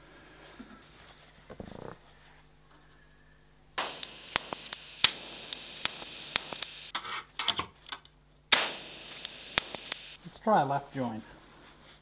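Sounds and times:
welding arc hissing and crackling: 3.8 - 6.9, 8.5 - 10.2.

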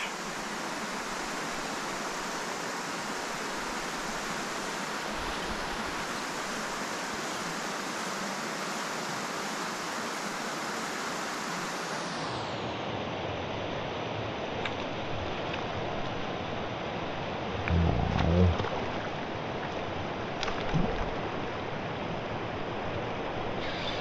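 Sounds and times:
river water rushing: 0.0 - 12.7.

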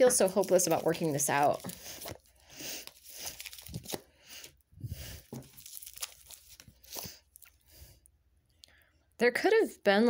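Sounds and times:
cards being shuffled: 0.0 - 4.1, 5.2 - 7.2.

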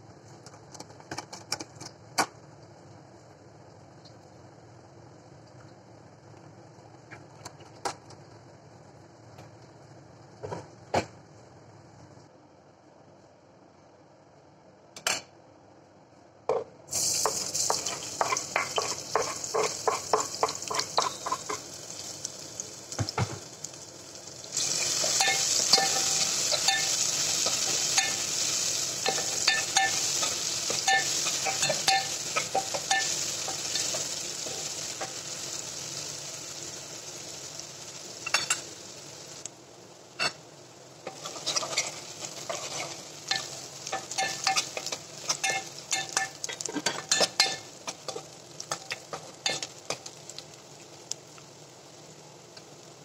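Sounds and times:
onions sizzling in hot oil: 16.9 - 53.0
spoon scraping a metal pot: 41.1 - 43.5.

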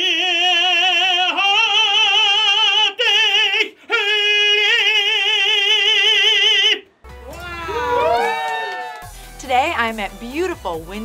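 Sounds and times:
man singing operatic tenor: 0.0 - 6.9.

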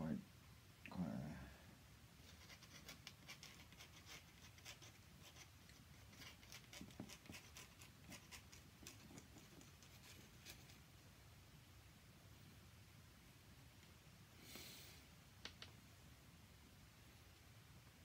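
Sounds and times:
low room hum: 0.0 - 18.0
pen nib scratching on paper: 2.2 - 10.8.

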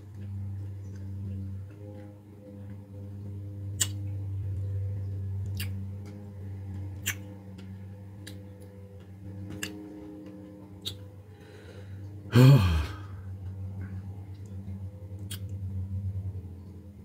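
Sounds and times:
steady low hum: 0.0 - 17.0
man chewing with wet smacks: 3.7 - 4.2, 5.4 - 6.2, 7.0 - 9.9, 10.8 - 11.1, 15.2 - 15.6
short vocal sound falling in pitch: 12.3 - 13.2.

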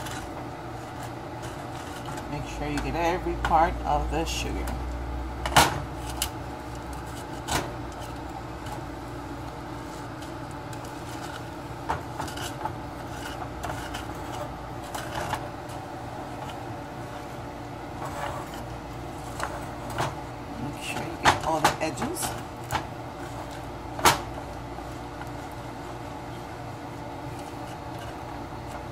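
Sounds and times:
wooden spoon scraping saucepan: 0.0 - 3.7, 9.8 - 23.8
steady hum: 0.0 - 28.9.

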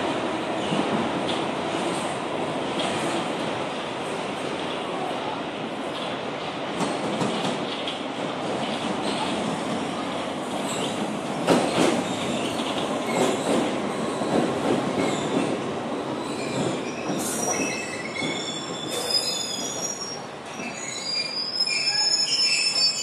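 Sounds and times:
train wheels rumbling on rails: 0.0 - 22.9
high-pitched wheel squeals: 16.3 - 23.0.

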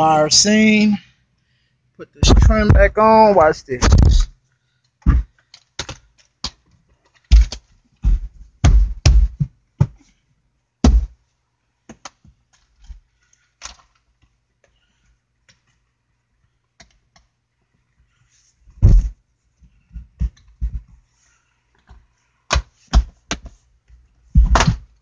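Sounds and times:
plastic panel knocks and clip snaps: 24.4 - 24.9.

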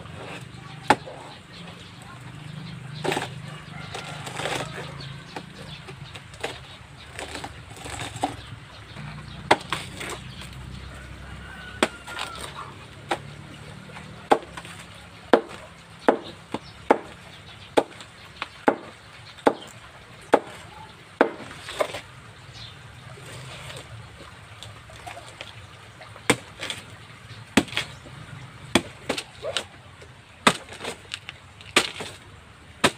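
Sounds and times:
knife chopping on wooden board: 14.3 - 14.7, 15.3 - 17.2, 21.2 - 22.0.

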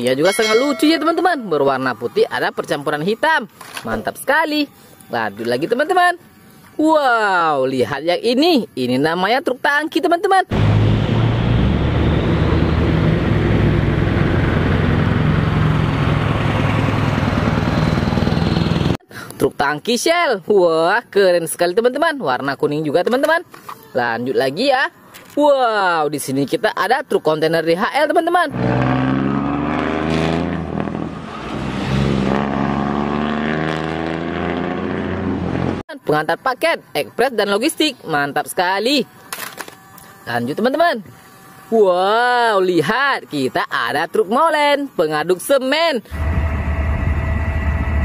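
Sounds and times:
truck engine rumbling: 10.5 - 19.0.

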